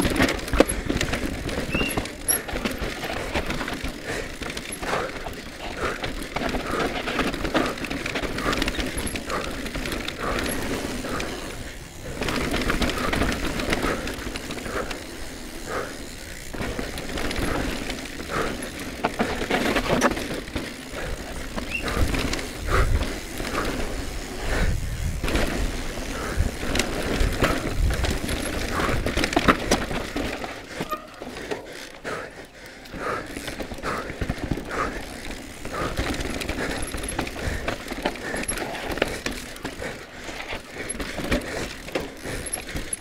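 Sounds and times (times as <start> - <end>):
tyres crunching over dirt and stone: 0.0 - 11.0
bike frame clattering: 0.0 - 14.0, 26.6 - 31.8.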